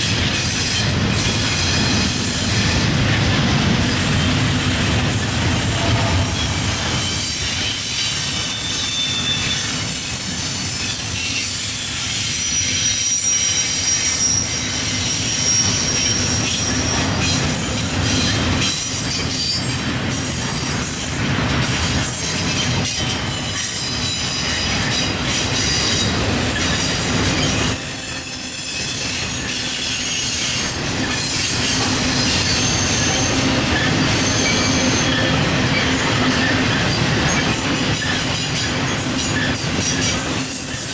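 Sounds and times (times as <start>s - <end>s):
train wheels rolling on rails: 0.0s - 40.9s
high wheel squeals: 5.0s - 20.9s, 22.0s - 40.9s.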